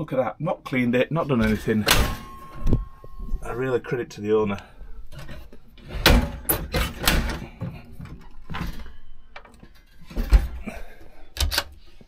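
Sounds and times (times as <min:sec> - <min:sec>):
oven doors clunking: 0:01.4 - 0:03.0, 0:05.2 - 0:07.6.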